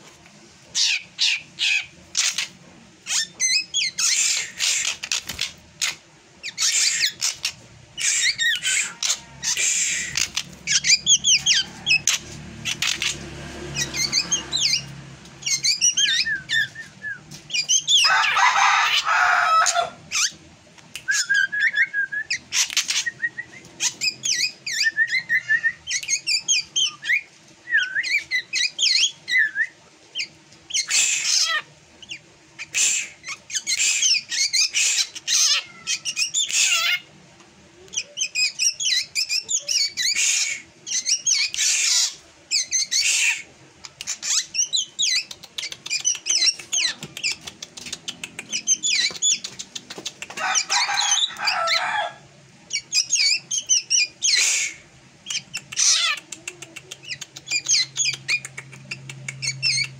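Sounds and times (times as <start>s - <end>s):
harsh rasping bird calls: 0.7s - 20.4s, 30.2s - 37.1s, 37.9s - 59.9s
bird singing whistles and chirps: 13.7s - 18.1s, 21.0s - 29.8s.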